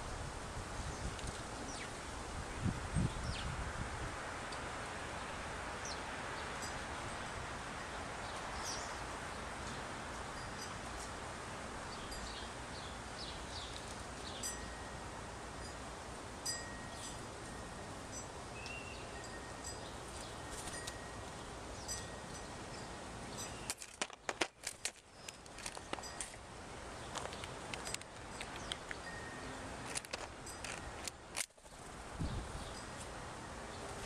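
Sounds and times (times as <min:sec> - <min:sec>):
steady outdoor hiss: 0:00.0 - 0:34.0
bird wings flapping and clicks: 0:13.6 - 0:14.0, 0:20.5 - 0:21.0, 0:23.6 - 0:26.4, 0:27.1 - 0:29.0
faint high tinkling notes: 0:16.5 - 0:23.7, 0:29.0 - 0:29.7.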